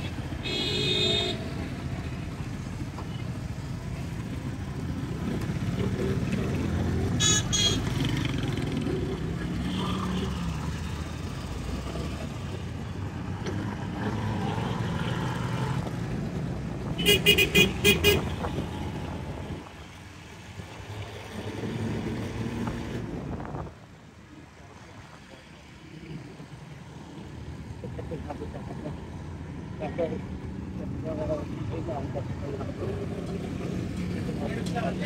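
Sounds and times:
road traffic rumble: 0:00.0 - 0:35.0
vehicle horn toots: 0:00.4 - 0:01.4, 0:07.2 - 0:07.9, 0:17.0 - 0:18.3.

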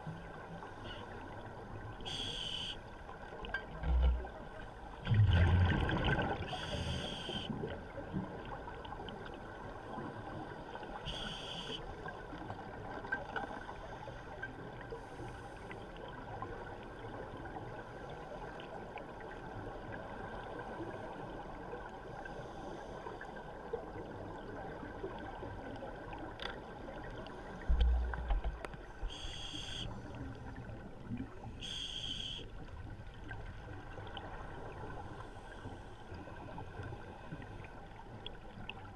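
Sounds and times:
underwater hiss: 0:02.0 - 0:02.8, 0:06.5 - 0:07.6, 0:11.0 - 0:11.8, 0:29.1 - 0:30.0, 0:31.6 - 0:32.4
scuba regulator exhalation bubbles: 0:05.1 - 0:06.4.

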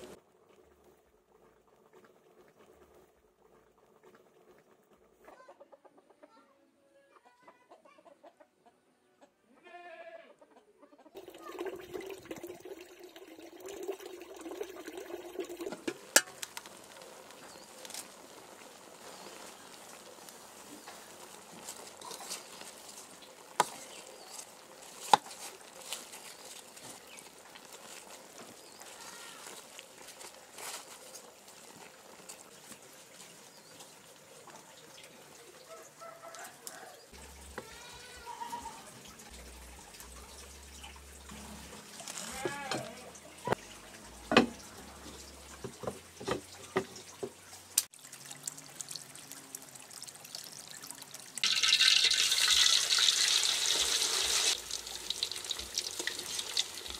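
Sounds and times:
chickens clucking: 0:05.2 - 0:09.5, 0:10.3 - 0:11.5.

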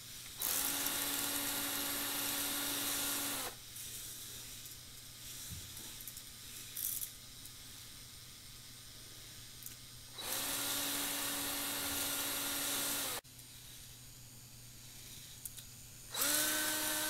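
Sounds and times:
small electric motor whirring: 0:00.4 - 0:03.6, 0:10.2 - 0:13.2, 0:16.1 - 0:17.0.

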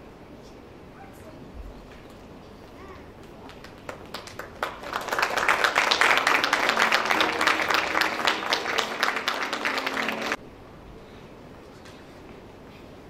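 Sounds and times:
audience applauding: 0:03.2 - 0:10.4.

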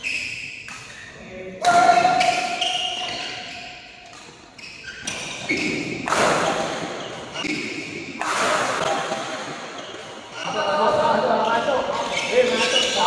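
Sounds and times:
shoes squeaking on court floor: 0:00.0 - 0:08.2, 0:08.8 - 0:13.0
racket striking shuttlecock: 0:00.5 - 0:01.0, 0:05.0 - 0:10.3.

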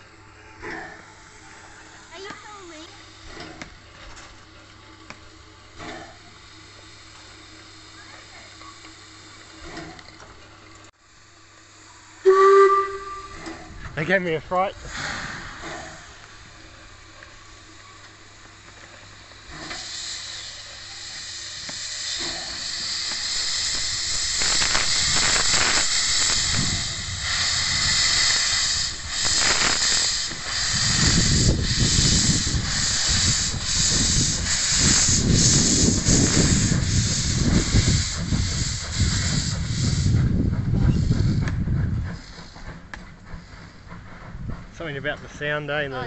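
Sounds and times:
steam locomotive hissing: 0:00.0 - 0:10.5, 0:11.1 - 0:46.0
steam locomotive chuffing: 0:00.0 - 0:46.0.

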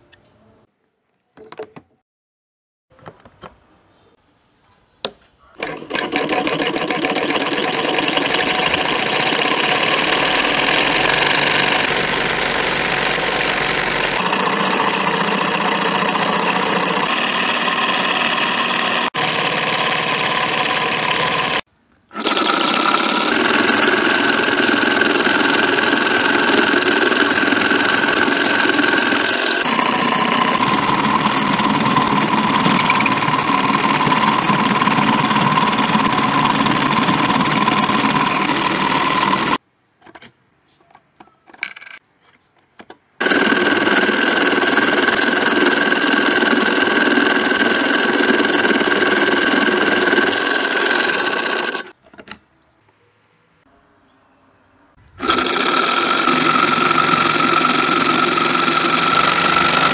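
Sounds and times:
saw blade cutting plastic sheet: 0:05.5 - 0:39.6, 0:43.2 - 0:52.0, 0:55.2 - 0:59.9
scroll saw motor whining: 0:05.6 - 0:39.6, 0:43.2 - 0:52.0, 0:55.2 - 0:59.9.

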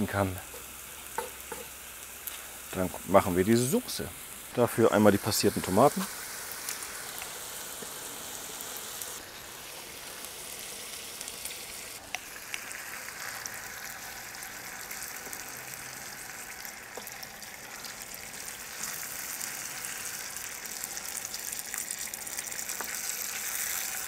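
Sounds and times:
sauce sizzling in skillet: 0:00.0 - 0:24.0.

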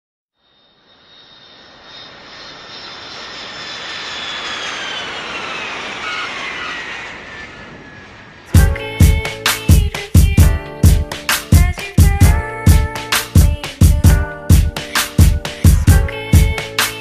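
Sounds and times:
jet aircraft passing overhead: 0:00.4 - 0:12.0
high whine falling in pitch: 0:00.4 - 0:12.2
music with heavy beat: 0:08.6 - 0:17.0.

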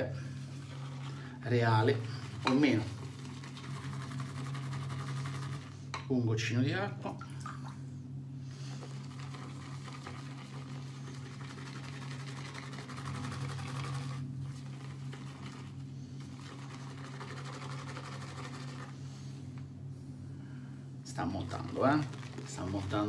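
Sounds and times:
steady low hum: 0:00.0 - 0:23.0
shaving brush swishing lather: 0:00.3 - 0:05.8, 0:08.8 - 0:19.3, 0:21.1 - 0:23.0.

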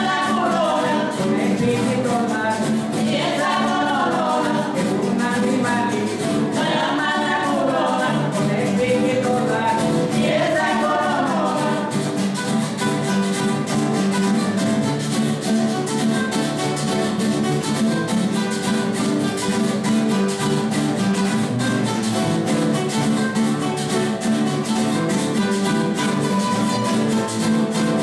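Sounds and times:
person singing: 0:00.0 - 0:12.4
acoustic guitars strumming: 0:00.0 - 0:28.0
scraper percussion rhythm: 0:00.0 - 0:28.0.

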